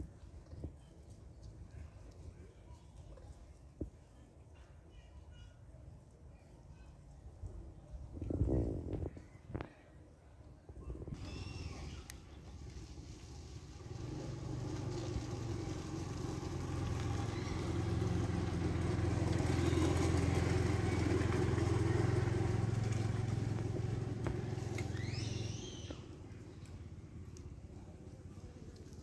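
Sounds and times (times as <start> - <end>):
vehicle engine running: 11.2 - 29.0.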